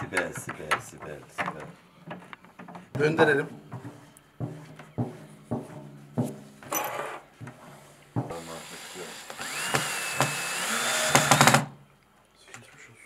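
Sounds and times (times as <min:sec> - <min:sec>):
cordless drill whine: 0:08.5 - 0:11.7
drill clutch clicking: 0:09.2 - 0:11.7.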